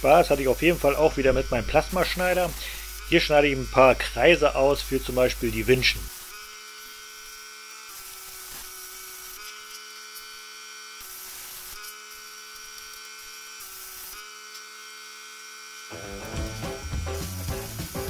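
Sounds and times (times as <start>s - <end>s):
plasma cutter buzzing whine: 0.0s - 18.0s
background music: 15.9s - 18.0s.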